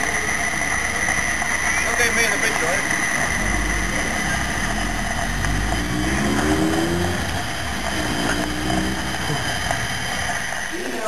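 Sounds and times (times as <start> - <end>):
steam locomotive venting steam: 0.0 - 11.0
low rumble: 3.1 - 11.0.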